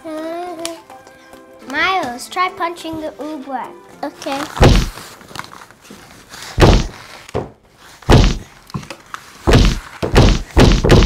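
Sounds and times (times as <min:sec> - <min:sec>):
fist thudding into oobleck: 0:04.6 - 0:04.9, 0:06.6 - 0:07.0, 0:08.1 - 0:08.5, 0:09.5 - 0:11.0.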